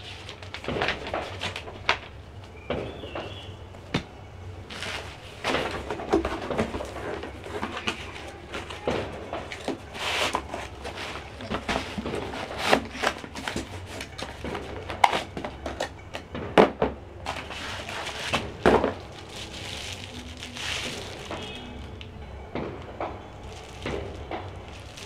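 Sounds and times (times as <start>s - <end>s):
cardboard and plastic rustling: 0.0s - 25.0s.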